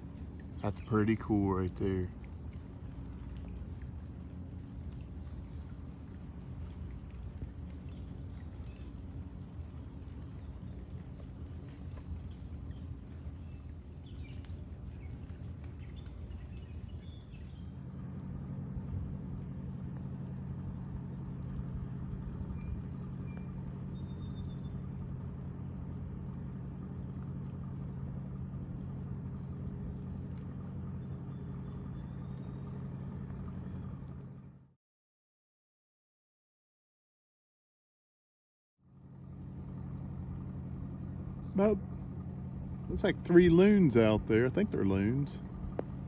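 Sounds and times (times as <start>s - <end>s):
low machine hum: 0.0s - 34.8s, 38.8s - 46.0s
high bird chirps: 22.5s - 25.0s.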